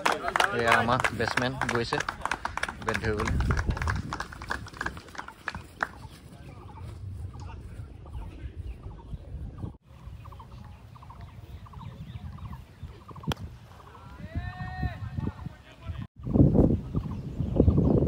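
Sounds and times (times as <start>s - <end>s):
wind rumble: 2.0s - 18.0s
birds chattering: 4.8s - 14.2s, 15.3s - 18.0s.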